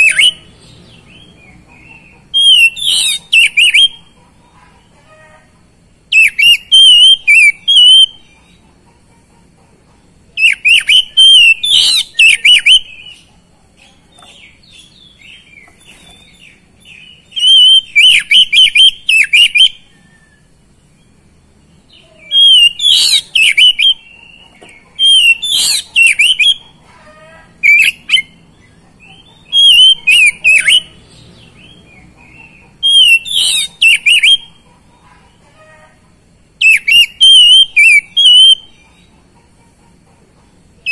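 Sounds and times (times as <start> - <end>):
bird warbling whistled phrases: 0.0 - 0.5, 2.3 - 4.0, 6.1 - 8.2, 10.4 - 13.2, 17.3 - 19.9, 22.2 - 24.1, 25.0 - 26.6, 27.6 - 28.4, 29.5 - 31.0, 32.8 - 34.6, 36.6 - 38.7.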